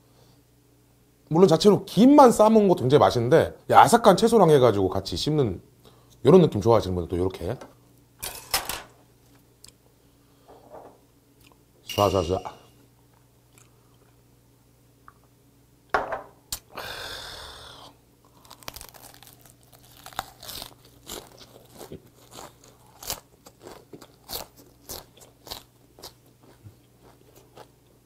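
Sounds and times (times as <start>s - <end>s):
crisp crunching of cabbage: 18.3s - 28.0s.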